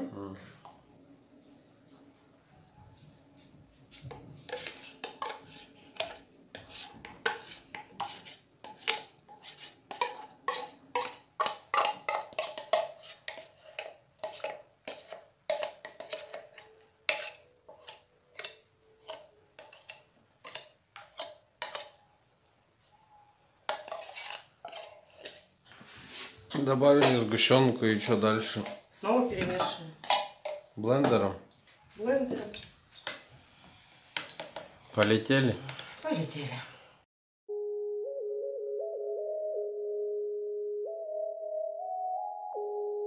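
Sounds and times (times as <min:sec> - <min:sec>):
metal spoon scraping a tin: 0:04.4 - 0:22.0, 0:23.7 - 0:25.5, 0:34.1 - 0:36.0.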